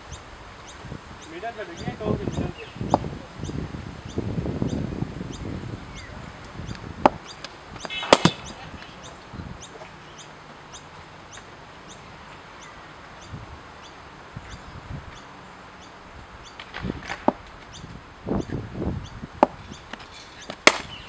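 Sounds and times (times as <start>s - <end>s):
cricket bat hitting ball: 7.8s - 8.6s, 20.5s - 21.0s.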